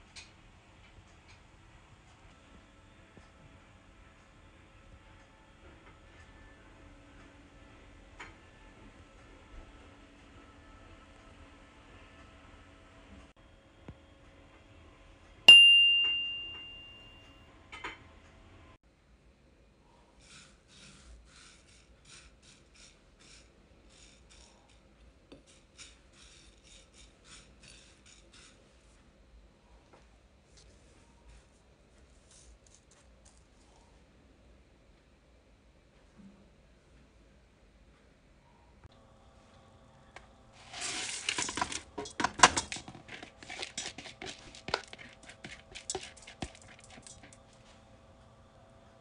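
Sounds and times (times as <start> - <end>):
faint swishes of lentils on a plate: 40.6 - 41.6
lentils pouring into metal pot: 40.6 - 47.4.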